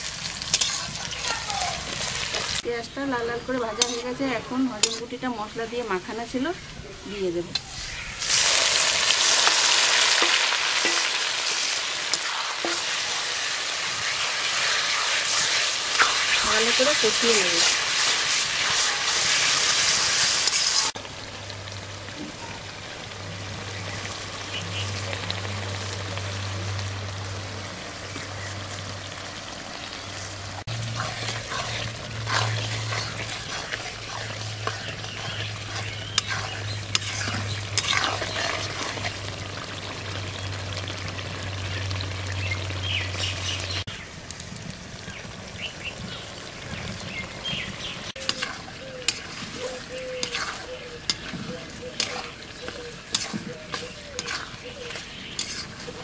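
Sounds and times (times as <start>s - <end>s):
food sizzling in a pan: 0.0s - 56.0s
metal spatula scraping pan: 0.4s - 1.1s, 3.7s - 5.2s, 10.0s - 13.2s, 14.1s - 20.8s, 30.7s - 39.2s, 48.2s - 56.0s.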